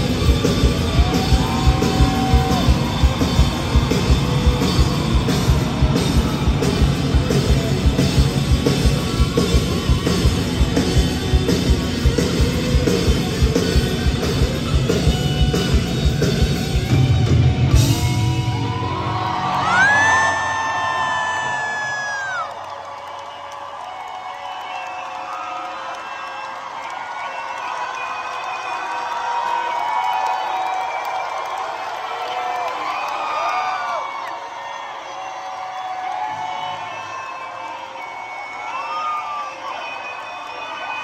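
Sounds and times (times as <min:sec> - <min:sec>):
drum beat: 0:00.0 - 0:18.5
electric guitars: 0:00.0 - 0:20.5.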